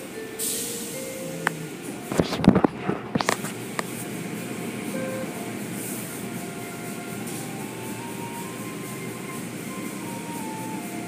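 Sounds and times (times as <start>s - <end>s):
car wash brushes and water spray: 1.6s - 11.0s.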